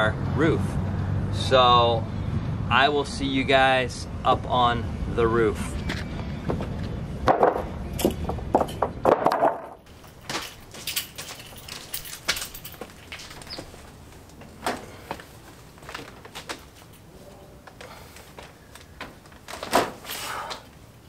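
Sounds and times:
knocks: 7.2 - 9.8
metal ladder clicks and clanks: 7.3 - 17.1
keys jangling: 9.9 - 13.9.

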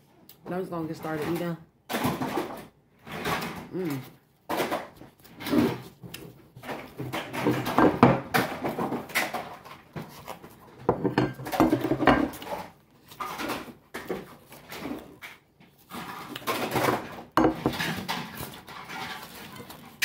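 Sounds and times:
person chewing: 3.7 - 6.9.

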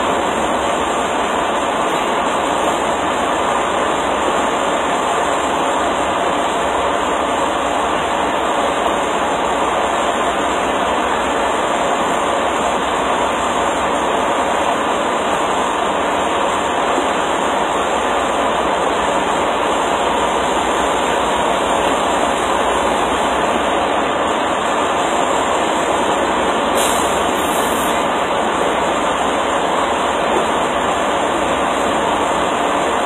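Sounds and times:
brief hiss: 26.8 - 28.1.

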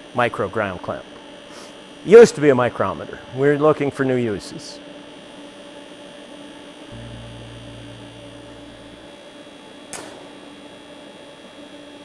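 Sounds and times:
welding power source humming: 6.9 - 10.4
deep low rumble: 7.0 - 9.2.

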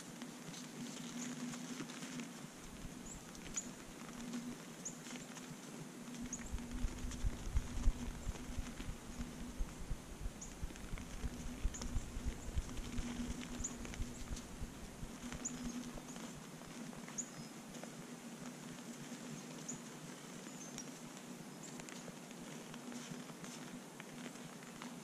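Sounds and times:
faint steady hum: 0.0 - 25.0
soft hoof thumps and patter: 0.2 - 19.6.

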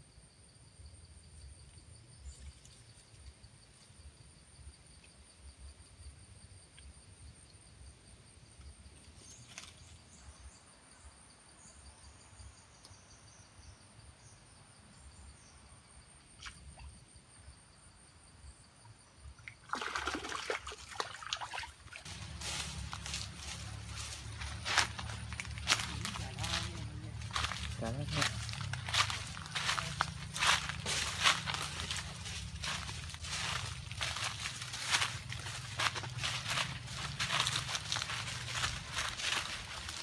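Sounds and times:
insect chirps: 0.0 - 40.0
water splashing and sloshing: 19.4 - 40.0
footsteps crunching dry leaves: 22.0 - 40.0
high insect drone: 22.0 - 40.0.

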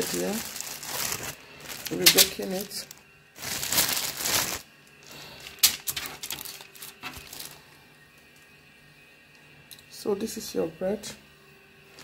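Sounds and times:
baking paper rustling: 0.0 - 7.7.

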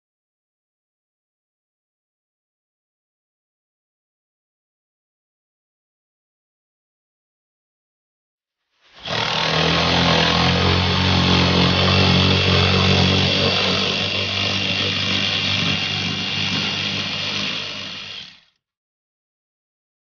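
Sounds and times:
power tool motor running: 9.0 - 18.6.

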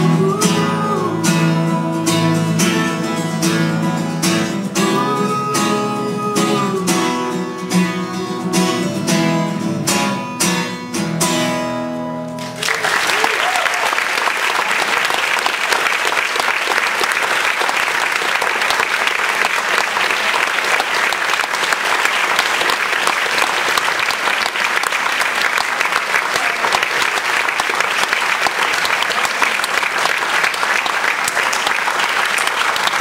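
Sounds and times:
audience applauding: 12.3 - 33.0.

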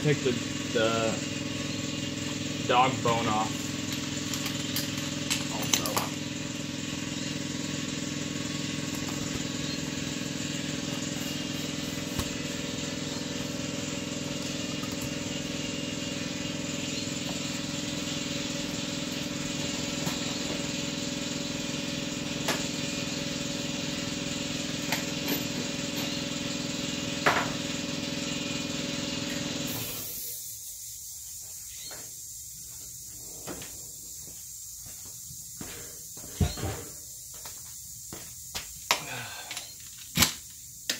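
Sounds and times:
machine droning hum: 0.0 - 40.9.

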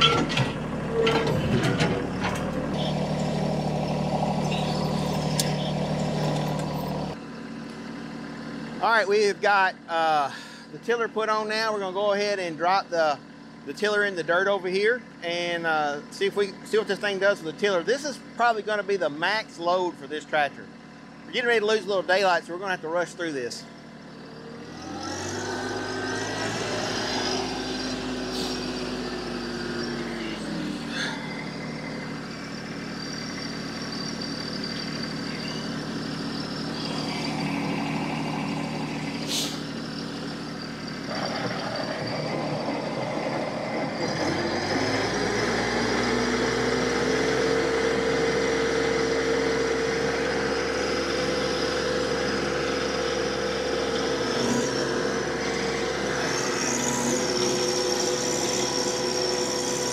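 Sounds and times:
rotary tiller in soil: 0.0 - 8.0, 23.7 - 59.9
tractor diesel engine running: 0.0 - 59.9.

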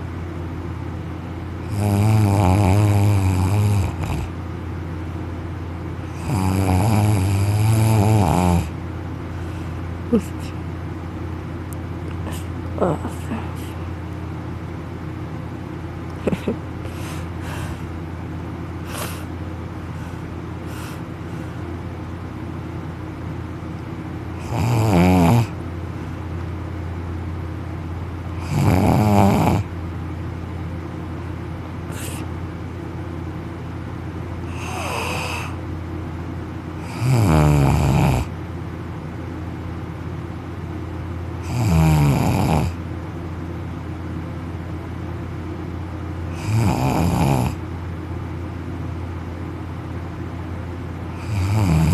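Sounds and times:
man snoring loudly: 1.7 - 4.3, 6.1 - 8.7, 24.4 - 25.6, 28.4 - 29.7, 34.5 - 35.6, 36.8 - 38.3, 41.4 - 42.8, 46.3 - 47.6, 51.2 - 51.9.

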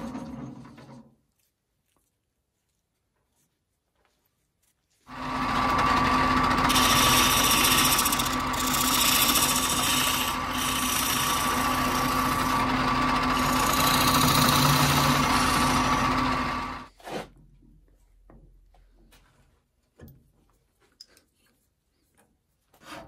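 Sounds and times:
wood lathe motor hum: 5.1 - 16.9
gouge scraping wood: 6.6 - 17.2.

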